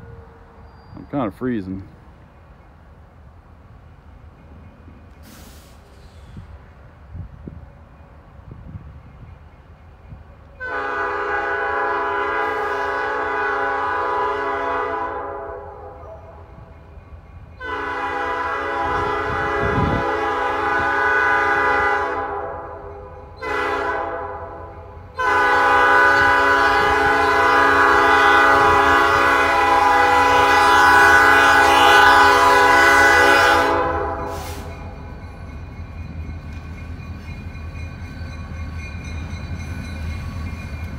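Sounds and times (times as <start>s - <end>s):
diesel locomotive horn blasts: 10.6s - 16.5s, 17.6s - 35.0s.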